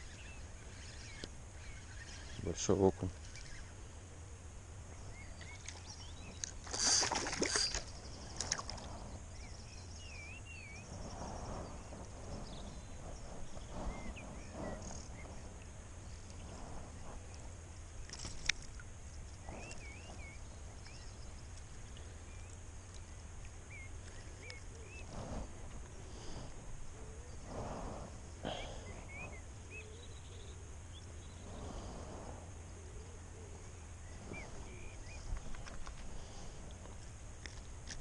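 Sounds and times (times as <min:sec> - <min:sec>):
birds chirping: 0:00.0 - 0:04.1, 0:04.8 - 0:32.0, 0:32.7 - 0:38.0
fish splashing at surface: 0:06.6 - 0:07.8.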